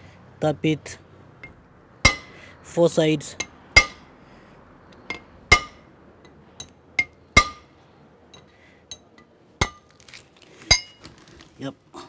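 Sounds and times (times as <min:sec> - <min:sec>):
hammer tapping metal drift: 0:01.4 - 0:02.4, 0:03.4 - 0:04.1, 0:04.9 - 0:09.8.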